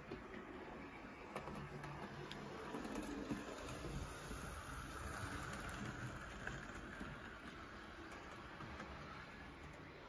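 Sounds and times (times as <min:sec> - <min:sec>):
model train motor hum: 0:01.3 - 0:10.0.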